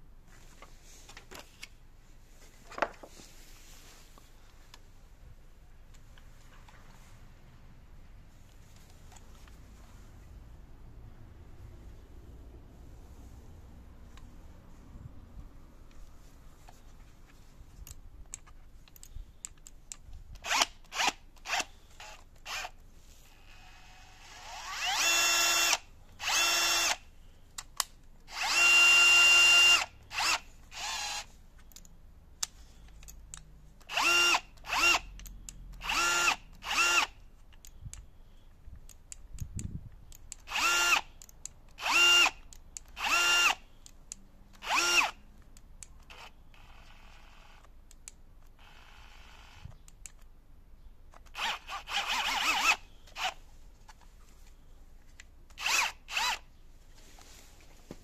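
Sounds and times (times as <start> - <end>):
cordless drill motor whine: 20.4 - 27.0, 28.3 - 31.3, 33.9 - 35.0, 35.8 - 37.1, 40.5 - 41.0, 41.8 - 42.3, 43.0 - 43.6, 44.6 - 45.2, 46.1 - 47.7, 48.6 - 49.8, 51.4 - 53.4, 55.6 - 56.4.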